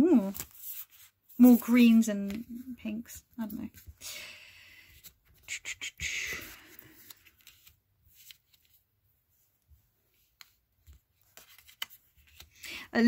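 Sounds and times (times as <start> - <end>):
cards rustling against cards: 0.1 - 2.6, 4.7 - 8.9, 10.0 - 12.9.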